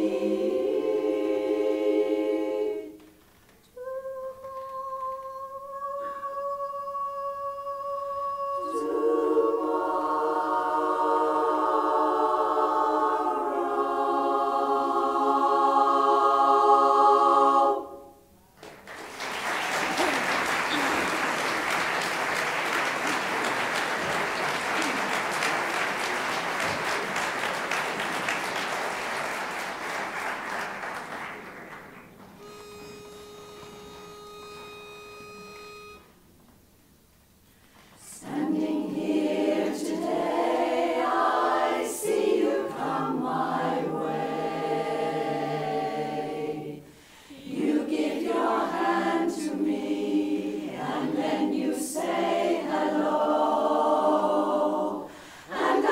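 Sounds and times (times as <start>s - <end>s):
women's chorus singing a cappella: 0.0s - 3.2s, 3.8s - 18.4s, 38.0s - 55.9s
audience applause: 18.6s - 32.4s.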